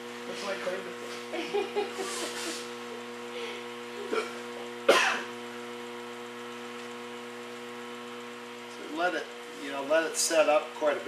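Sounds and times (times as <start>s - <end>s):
steady hum: 0.0s - 11.0s
throat clearing: 4.0s - 5.3s
person coughing: 4.1s - 5.3s.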